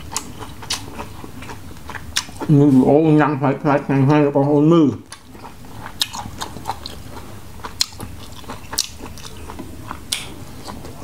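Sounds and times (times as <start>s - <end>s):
man chewing: 0.0s - 3.2s, 4.5s - 11.0s
wet mouth clicks and smacks: 10.1s - 10.3s.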